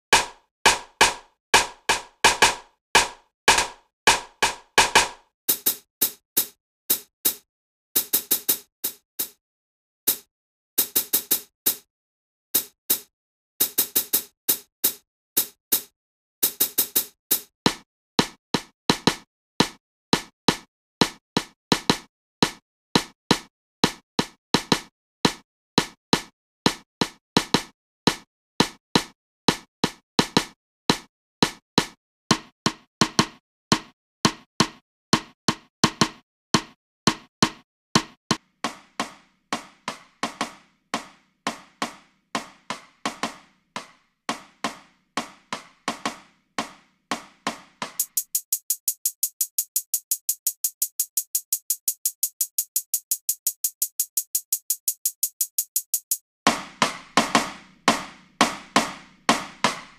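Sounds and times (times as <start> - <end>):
drum machine beat: 0.1 - 7.4, 8.0 - 9.4, 10.1 - 11.9, 12.6 - 59.9
fast high hi-hat ticking: 48.0 - 57.0.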